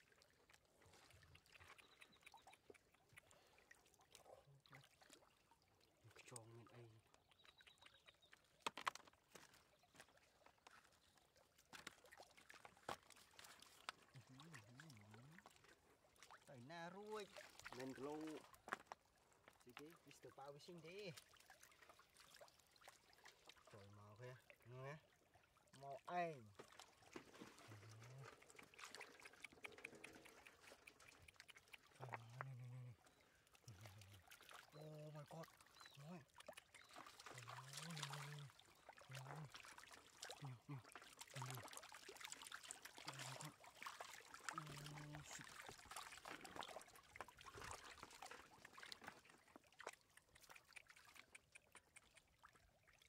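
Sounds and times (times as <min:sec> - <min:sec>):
faint water trickling and splashing: 0:00.0 - 0:53.0
low humming voice: 0:32.0 - 0:33.0, 0:39.1 - 0:39.5, 0:40.4 - 0:41.6, 0:43.1 - 0:43.5.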